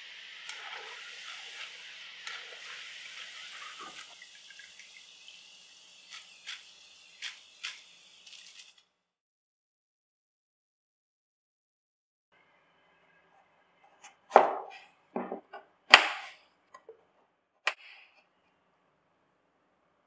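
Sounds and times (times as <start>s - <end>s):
food sizzling in hot oil: 0.0s - 8.9s.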